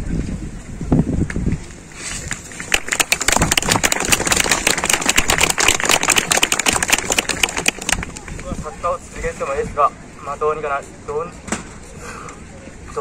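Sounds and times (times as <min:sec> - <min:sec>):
crowd applauding: 0:02.7 - 0:08.4.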